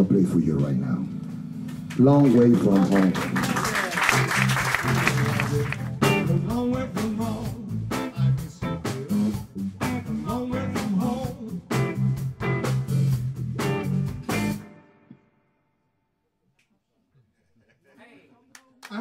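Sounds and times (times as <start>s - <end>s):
electric guitar playing slow blues: 0.3s - 15.3s
audience applause: 1.9s - 6.1s, 18.8s - 19.0s.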